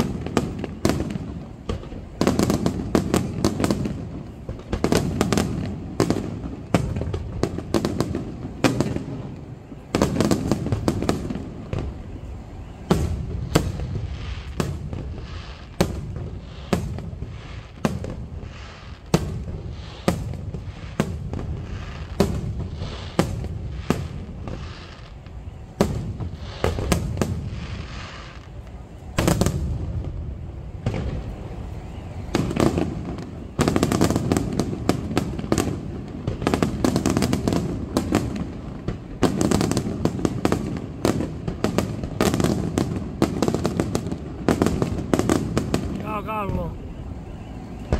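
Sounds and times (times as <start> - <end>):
echoing rumble of reports: 45.9 - 47.9.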